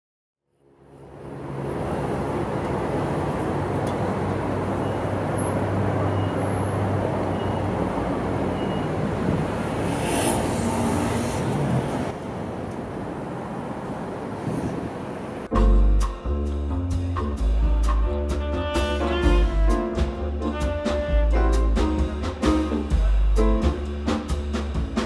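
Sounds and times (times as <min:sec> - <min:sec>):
passing cars: 0:00.5 - 0:15.5.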